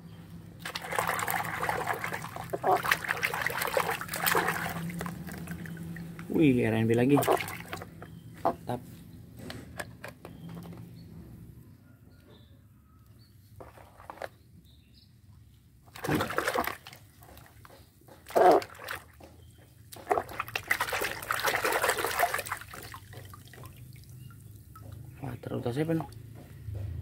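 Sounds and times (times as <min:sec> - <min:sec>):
hand splashing in basin water: 0:00.6 - 0:07.9, 0:15.9 - 0:17.0, 0:20.0 - 0:24.0.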